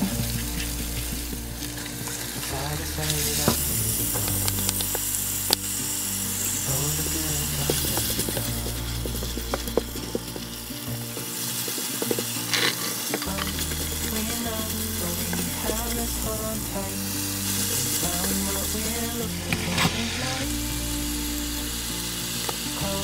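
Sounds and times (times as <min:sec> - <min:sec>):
food sizzling in a wok: 0:00.0 - 0:23.0.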